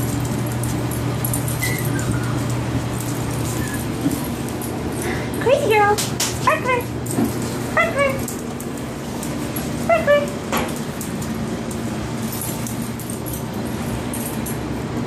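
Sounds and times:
box fan humming: 0:00.0 - 0:15.0
puppy whimpering: 0:01.6 - 0:02.7, 0:03.4 - 0:04.0.

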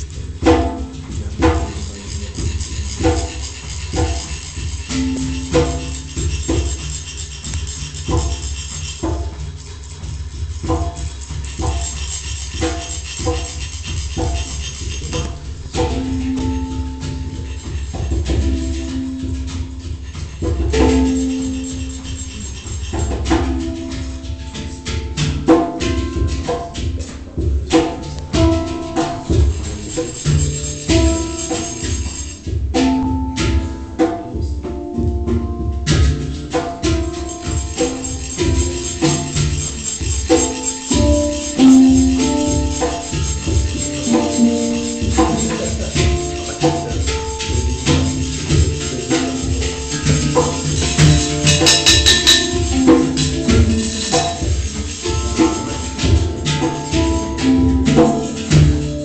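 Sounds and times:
hand drum strikes: 0:00.0 - 0:59.0
hang drum notes: 0:00.0 - 0:59.0
bright jingling rattle: 0:01.8 - 0:15.4, 0:37.1 - 0:57.4.

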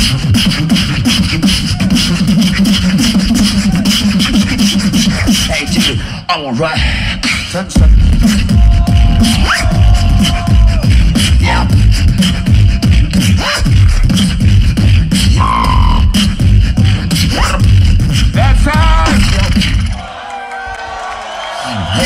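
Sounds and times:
beatboxing: 0:00.0 - 0:20.2
heavy bass kicks: 0:07.8 - 0:20.0.

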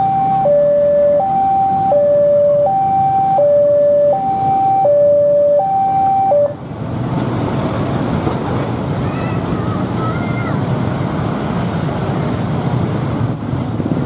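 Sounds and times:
level crossing two-tone alarm: 0:00.0 - 0:06.6.

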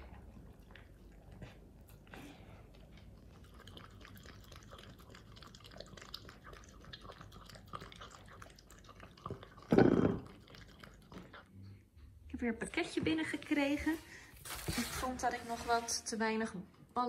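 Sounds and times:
dog licking and lapping: 0:00.1 - 0:11.7.

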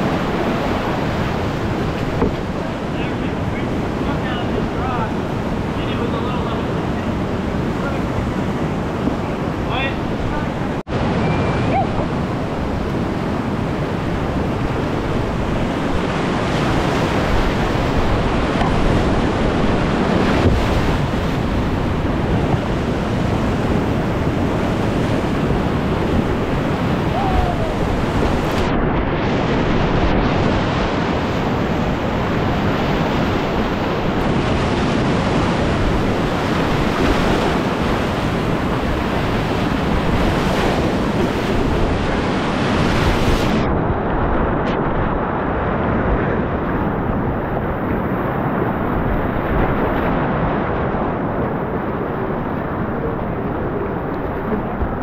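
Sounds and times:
whitewater rapids rushing: 0:00.0 - 0:43.6
wind noise on microphone: 0:00.0 - 0:55.0.

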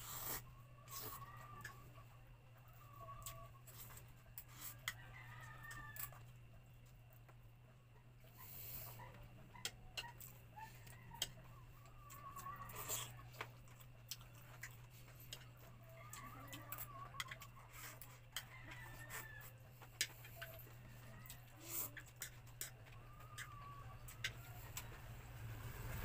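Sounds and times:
chewing: 0:08.2 - 0:25.0
chopsticks clicking on bowls: 0:16.2 - 0:18.8, 0:22.0 - 0:24.8.

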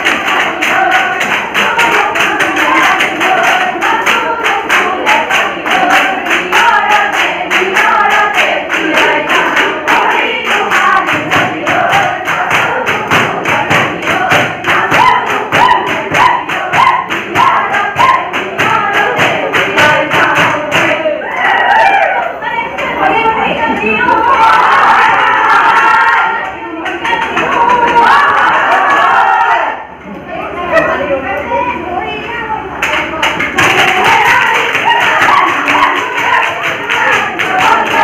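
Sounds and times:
fast percussion beat: 0:00.0 - 0:21.0, 0:33.1 - 0:38.0
women singing in a group: 0:00.0 - 0:29.9, 0:32.8 - 0:38.0.

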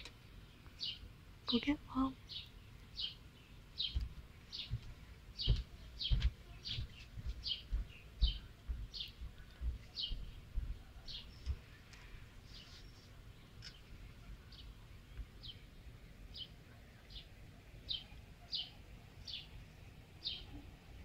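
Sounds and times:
bird chirping: 0:00.0 - 0:21.0
soft low thumps: 0:03.8 - 0:11.8.

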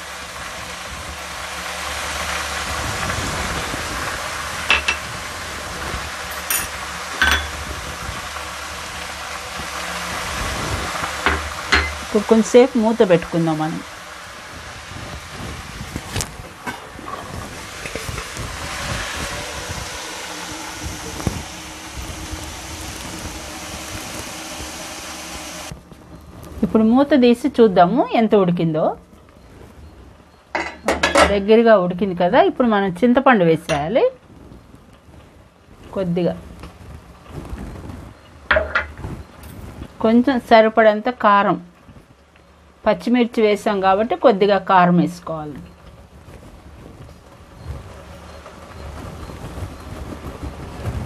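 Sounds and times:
gas burner rushing: 0:00.0 - 0:26.7
pot cooking with steady hiss: 0:00.0 - 0:51.0.

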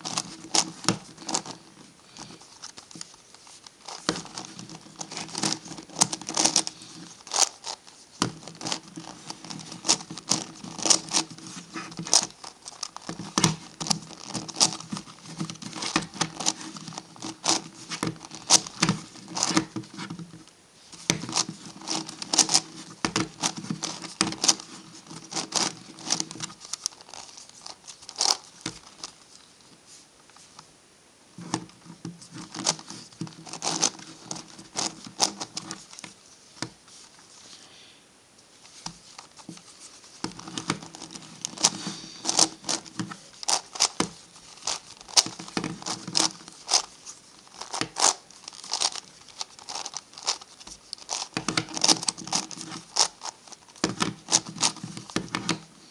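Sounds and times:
plastic puzzle clicking as twisted: 0:03.8 - 0:07.8, 0:08.4 - 0:20.2, 0:21.0 - 0:29.2, 0:32.3 - 0:36.1, 0:40.2 - 0:55.7.

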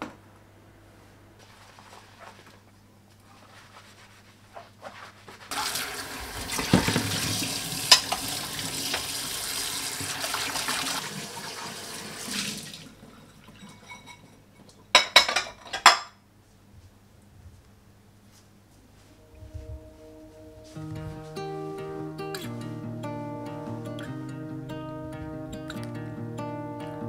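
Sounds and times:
tap water running into sink: 0:05.5 - 0:13.0
dishes clinking into rack: 0:07.9 - 0:08.3, 0:13.1 - 0:16.2.

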